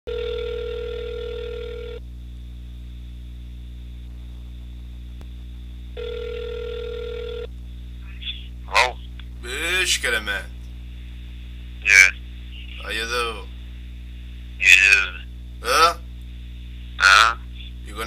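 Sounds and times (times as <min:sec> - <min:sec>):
telephone ringback tone: 0:00.1 - 0:02.0, 0:06.0 - 0:07.5
steady low hum: 0:00.1 - 0:18.0.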